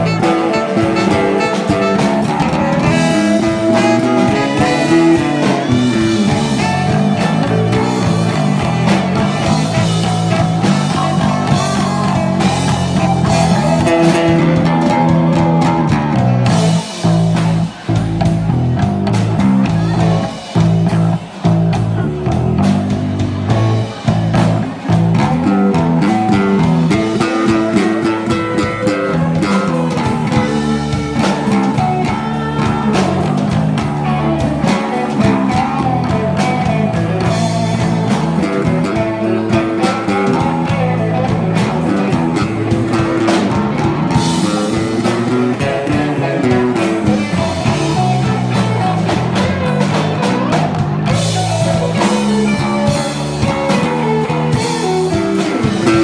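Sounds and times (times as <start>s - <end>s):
saxophones: 0.0s - 16.8s
drum kit: 0.0s - 56.0s
electric bass: 0.0s - 56.0s
electric guitar: 0.0s - 56.0s.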